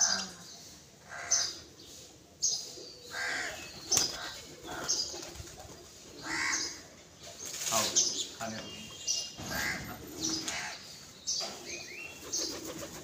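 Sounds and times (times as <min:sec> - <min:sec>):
crows cawing: 0:01.0 - 0:01.6, 0:03.1 - 0:03.6, 0:06.2 - 0:06.9, 0:09.4 - 0:10.9
pigeons flapping wings: 0:03.9 - 0:05.9, 0:12.2 - 0:13.0.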